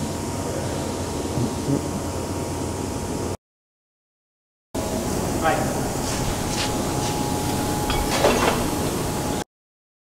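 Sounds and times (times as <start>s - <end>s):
workshop background noise: 5.0s - 9.1s.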